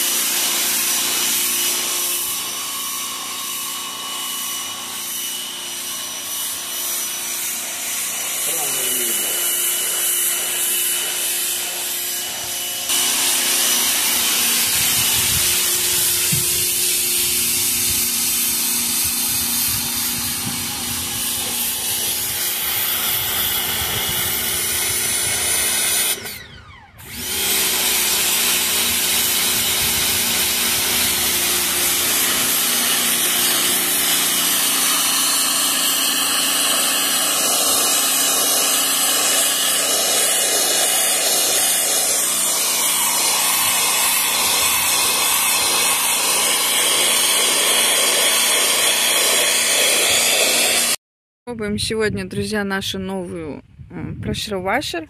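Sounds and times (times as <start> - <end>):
water jet hissing: 0.0 - 26.4, 27.3 - 51.0
pressure washer motor hum: 0.0 - 51.0.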